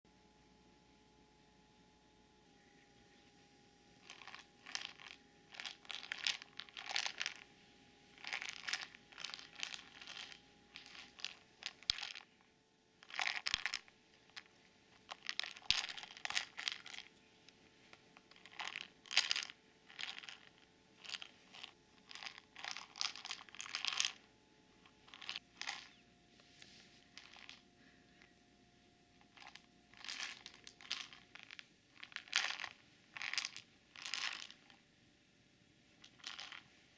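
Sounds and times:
kibble rattling in plastic ball: 4.0s - 7.5s, 8.1s - 17.3s, 18.2s - 24.2s, 24.8s - 26.0s, 27.0s - 28.3s, 29.1s - 34.8s, 36.0s - 36.8s.

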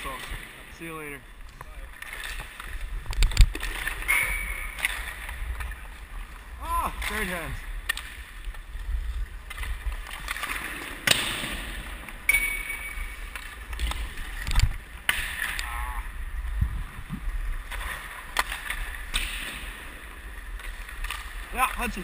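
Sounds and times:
skates scraping on ice: 1.6s - 12.2s, 17.1s - 22.0s
stick and puck clacks: 7.1s - 8.7s, 9.4s - 15.7s, 17.7s - 19.8s, 20.5s - 22.0s.

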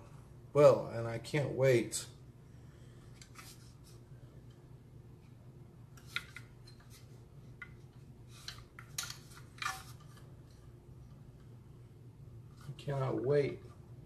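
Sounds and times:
steady low hum: 0.0s - 14.0s
rifle handling clicks and taps: 6.0s - 7.0s.

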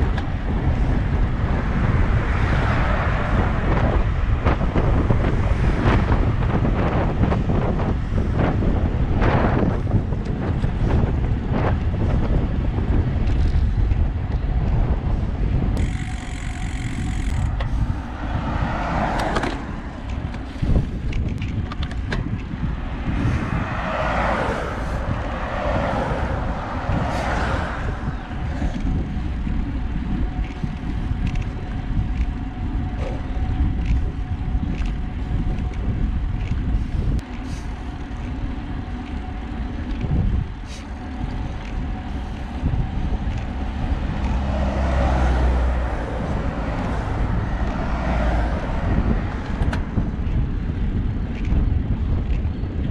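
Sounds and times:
wind buffeting microphone: 0.0s - 52.9s
car passing: 0.5s - 10.1s, 15.8s - 21.3s, 22.5s - 31.4s, 37.0s - 50.8s.

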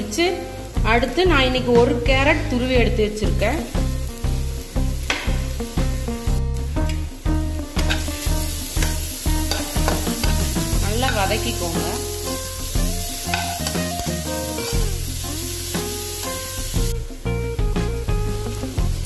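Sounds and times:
food sizzling in oil: 0.0s - 19.0s
music with low beat: 0.8s - 19.0s
spatula stirring in pan: 7.8s - 14.9s.

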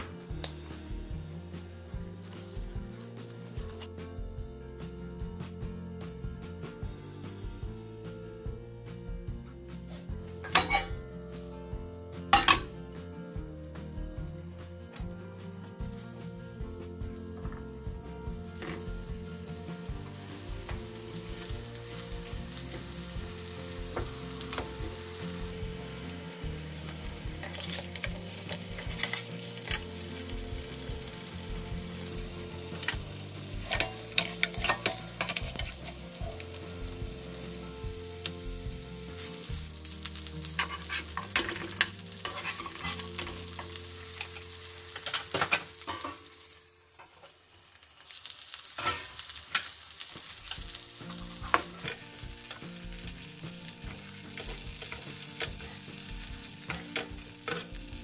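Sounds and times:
patties sizzling in frying pan: 0.0s - 3.9s, 15.8s - 58.0s.

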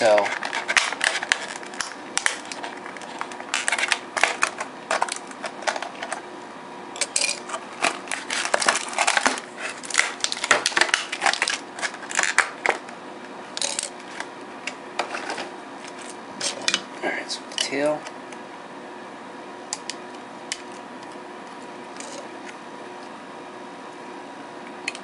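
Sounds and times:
plastic packaging crinkling: 0.0s - 6.2s, 7.1s - 12.9s.

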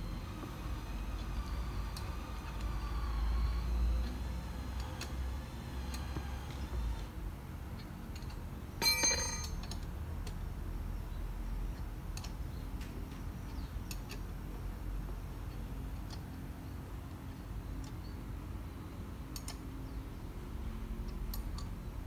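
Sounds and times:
ringing metal clink: 8.8s - 9.7s
faint metal clicks: 19.3s - 19.7s.

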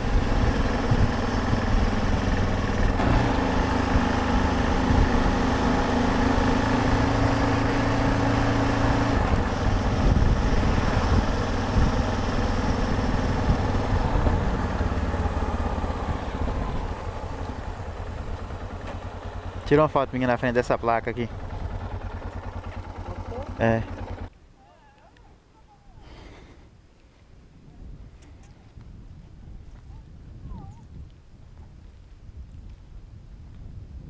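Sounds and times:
motorcycle engine running: 0.0s - 24.3s.

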